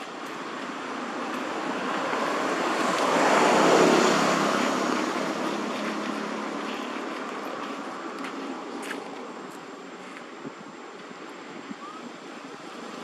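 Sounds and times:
vehicle passing by: 0:00.0 - 0:09.4.

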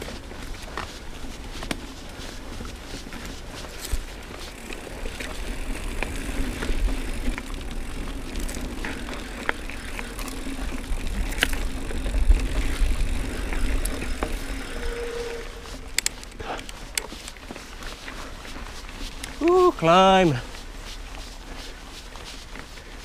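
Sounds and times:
bike clicks and rattles: 0:00.0 - 0:20.6
bike tyre hum: 0:00.0 - 0:23.0
wind rumble on microphone: 0:05.1 - 0:15.9.

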